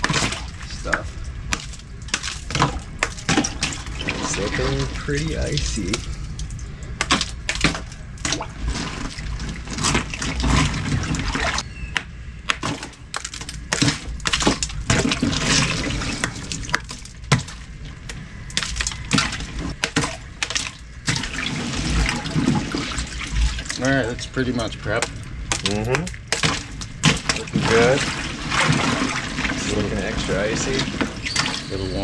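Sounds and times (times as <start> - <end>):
ice clattering and cracking: 0.0 - 11.6, 12.5 - 31.9
water sloshing: 0.0 - 11.6, 12.5 - 32.0.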